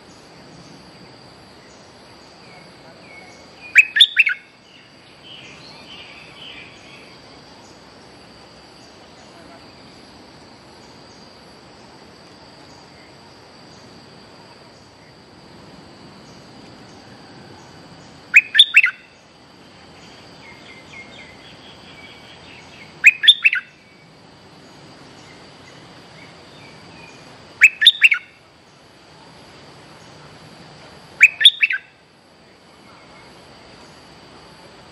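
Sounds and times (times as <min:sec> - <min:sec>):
high insect drone: 0:00.0 - 0:34.9.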